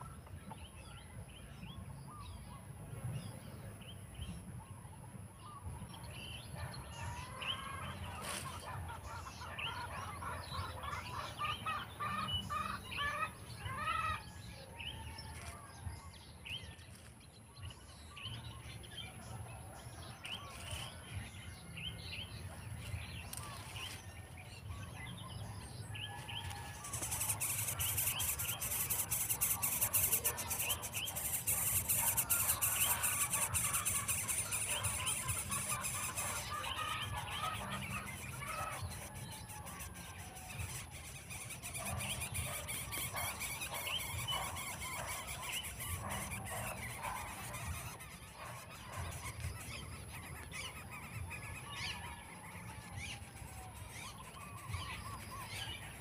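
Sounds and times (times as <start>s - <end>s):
baby birds chirping: 6.8s - 14.3s, 26.0s - 56.0s.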